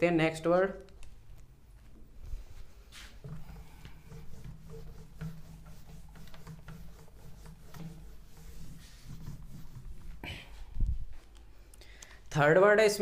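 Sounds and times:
cloth rubbing whiteboard: 2.4 - 11.3.

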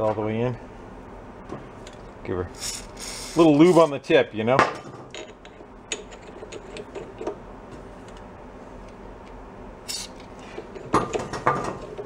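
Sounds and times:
aerosol spray hiss: 2.7 - 3.4.

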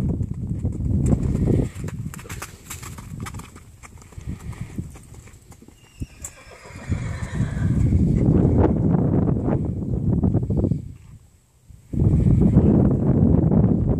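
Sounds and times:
horse hooves on dirt: 0.0 - 9.4
horse whinny: 5.8 - 8.0
heavy low rumble: 7.6 - 10.8.

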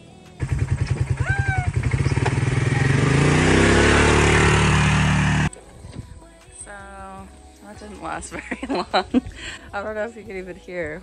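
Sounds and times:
small engine revving: 0.4 - 5.5
rising and falling tone: 1.1 - 5.5.

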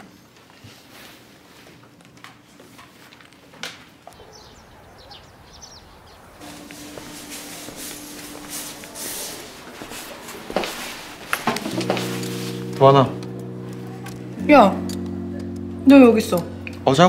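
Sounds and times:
steady low hum: 6.4 - 17.0.

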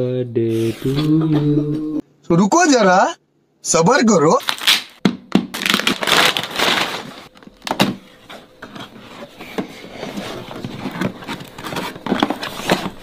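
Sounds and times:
wrapping paper tearing: 4.4 - 7.3
cardboard box being opened: 5.6 - 7.2, 8.6 - 13.0.

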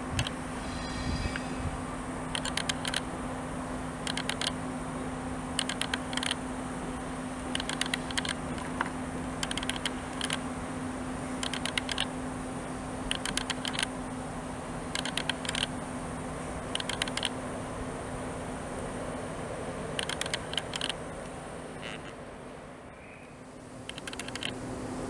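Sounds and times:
train humming: 0.0 - 25.0
train wheels clicking: 2.2 - 3.1, 4.0 - 4.6, 7.5 - 8.8, 9.4 - 10.4.

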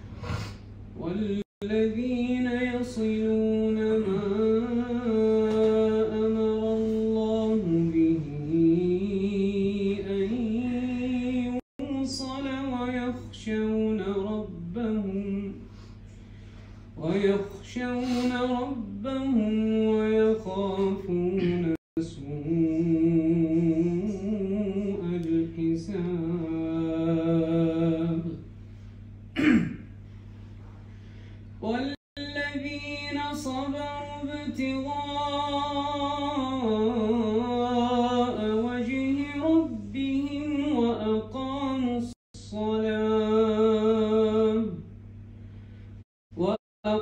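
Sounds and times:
sharp intake of breath: 0.0 - 0.8, 45.3 - 46.0
steady low hum: 0.0 - 47.0.

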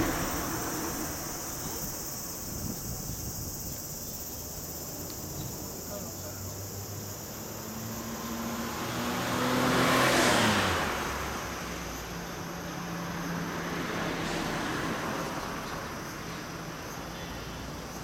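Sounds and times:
vehicle driving past: 0.0 - 2.4, 7.9 - 11.6
fainter vehicle passing: 0.0 - 2.6.

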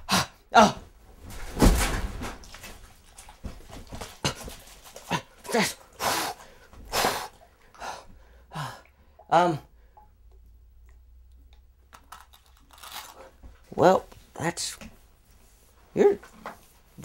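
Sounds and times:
man yelping: 0.1 - 0.8.

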